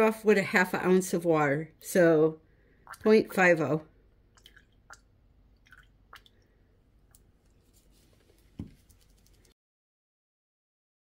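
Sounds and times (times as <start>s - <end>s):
faint water drips: 2.6s - 7.6s.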